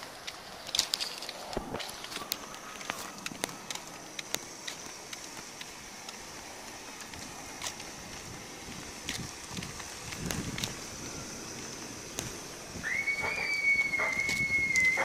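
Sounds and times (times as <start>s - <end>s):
steady high-pitched hiss: 0.0s - 15.0s
flip-flops slapping on concrete: 0.3s - 11.0s.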